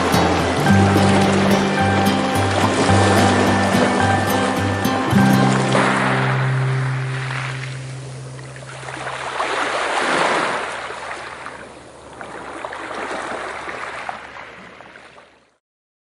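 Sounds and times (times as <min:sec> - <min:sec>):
held musical note: 0:00.0 - 0:09.2
ocean waves breaking: 0:00.0 - 0:15.4.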